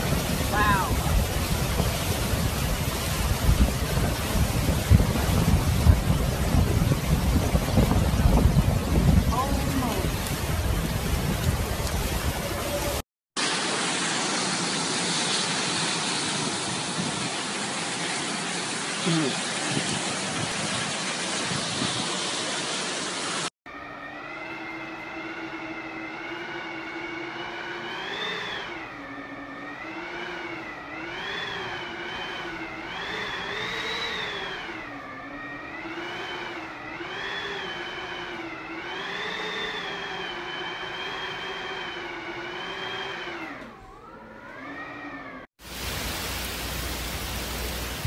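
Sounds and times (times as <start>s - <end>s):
rushing wind and rain: 0.0s - 23.5s, 25.1s - 43.7s, 45.6s - 48.0s
wind howling through door gaps: 0.0s - 48.0s.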